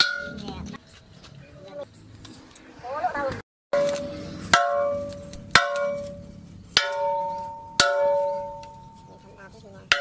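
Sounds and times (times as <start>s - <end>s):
hammer blows on metal ringing: 3.8s - 9.3s.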